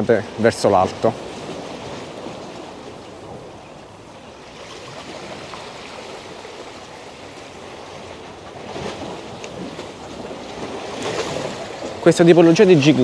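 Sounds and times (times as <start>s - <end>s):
sea water washing against rocks: 4.5s - 13.0s.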